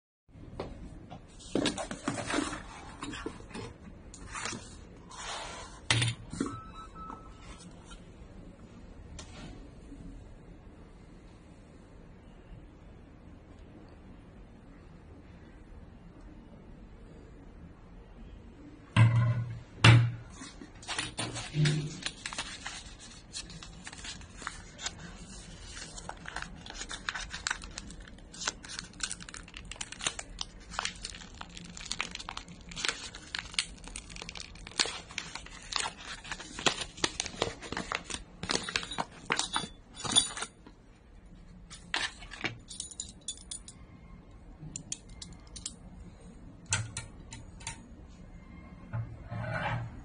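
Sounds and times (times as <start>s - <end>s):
plastic bag crinkling: 20.9s - 39.6s.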